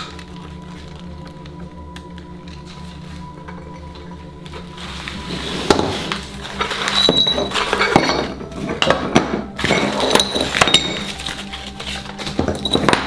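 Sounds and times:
plastic and foil crinkling: 0.0 - 8.9, 9.5 - 13.0
ceramic tile pieces clinking: 6.6 - 9.0, 9.6 - 13.0.

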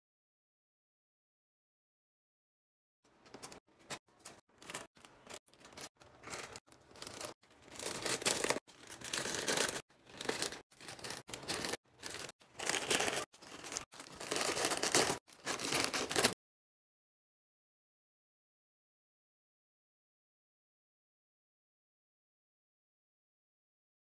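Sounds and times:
foil crisp packets crinkling: 4.5 - 16.4.

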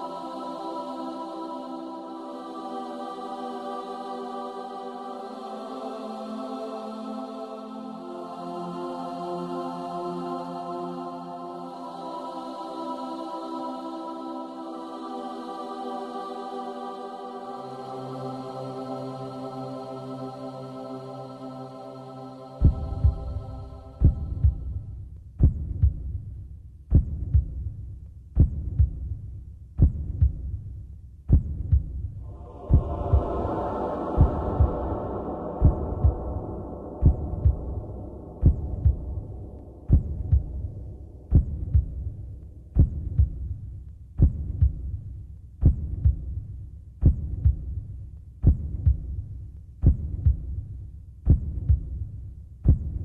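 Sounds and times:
heartbeat double thumps: 22.6 - 26.2, 26.9 - 27.8, 28.4 - 29.2, 29.8 - 30.6, 31.3 - 46.4, 47.0 - 47.8, 48.4 - 49.2, 49.8 - 50.6, 51.2 - 53.0
low steady hum: 32.2 - 43.9.

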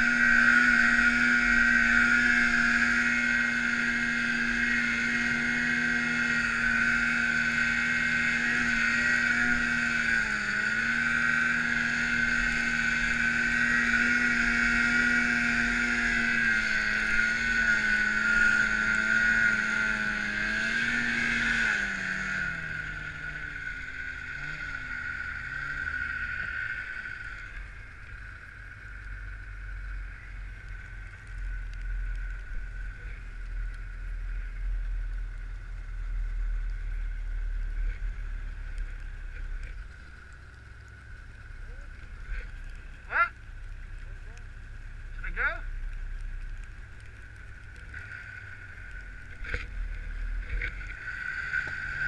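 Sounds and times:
snowmobile engine revving: 0.0 - 31.1, 45.1 - 45.8, 47.8 - 52.0.

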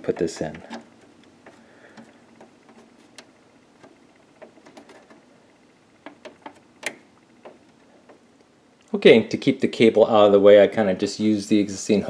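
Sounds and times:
plastic connector clicking and rubbing: 0.0 - 5.3, 6.0 - 8.3.

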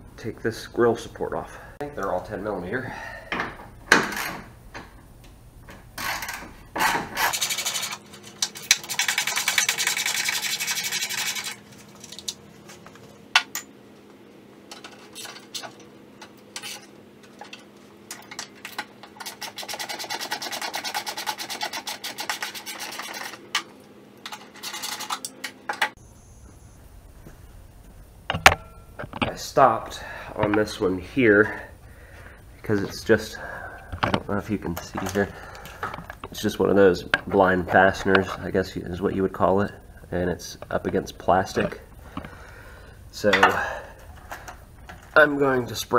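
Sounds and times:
metal tools clanking: 34.0 - 38.4, 43.2 - 43.8.

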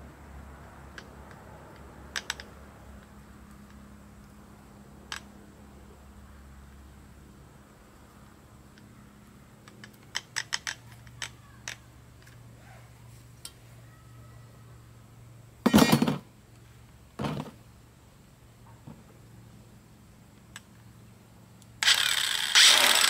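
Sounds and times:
tools clattering on plastic case: 15.7 - 16.2.

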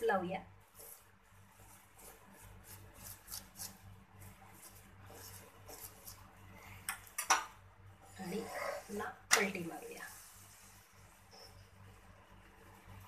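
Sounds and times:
utensil rubbing on flatbread: 0.7 - 6.7.

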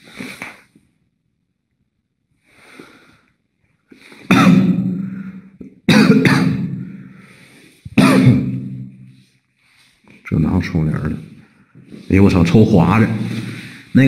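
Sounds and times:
man coughing hard: 4.3 - 7.1, 7.9 - 8.8.

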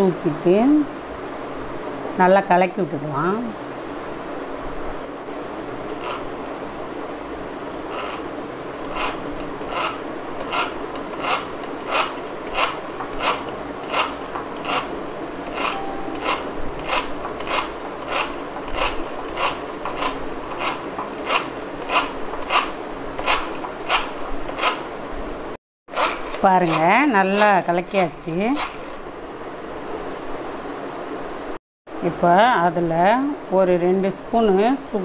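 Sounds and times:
beater scraping bowl: 5.9 - 6.3, 7.9 - 24.8, 25.9 - 29.0
egg beater whirring: 7.9 - 8.2, 8.8 - 24.8, 25.9 - 27.6.

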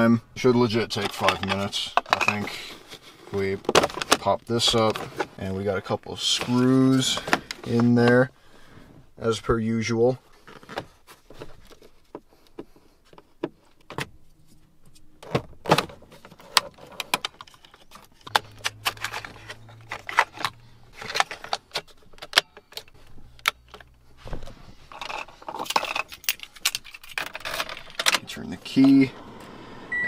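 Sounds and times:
keys jingling: 25.0 - 28.1.

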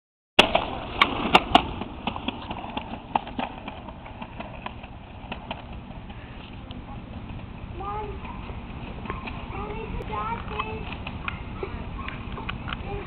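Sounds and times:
caster board wheels clacking: 0.4 - 13.0.

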